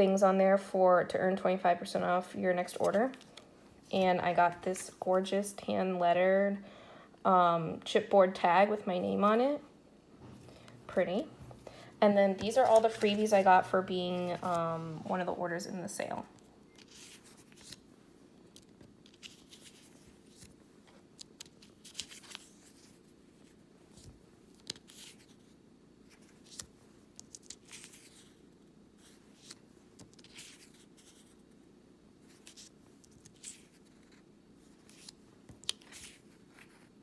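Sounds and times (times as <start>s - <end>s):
low steady hum: 0.0s - 37.0s
paper rustling: 12.4s - 13.5s, 16.8s - 17.8s, 18.5s - 31.4s, 32.3s - 37.0s.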